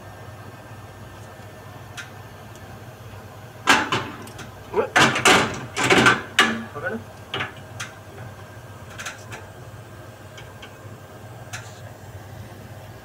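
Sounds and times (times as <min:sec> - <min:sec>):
low machine hum: 0:00.0 - 0:13.0
light clicks and taps on pipe: 0:11.5 - 0:11.8.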